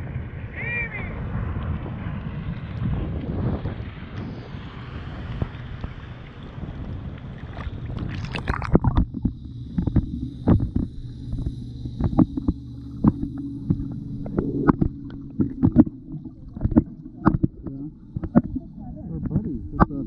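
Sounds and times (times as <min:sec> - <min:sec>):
underwater low hum: 0:00.0 - 0:20.0
wind and splashing: 0:00.0 - 0:20.0
underwater clicks and knocks: 0:07.5 - 0:20.0.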